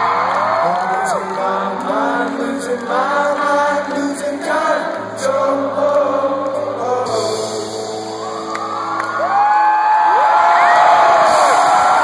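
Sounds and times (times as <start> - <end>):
person singing: 0.4 - 8.4
rock band playing live: 3.8 - 9.4.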